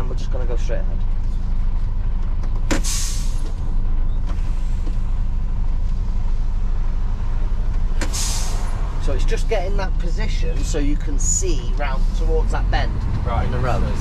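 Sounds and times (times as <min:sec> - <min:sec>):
lorry diesel engine running: 0:00.0 - 0:14.0
air brake hiss: 0:02.7 - 0:03.5, 0:08.0 - 0:08.7.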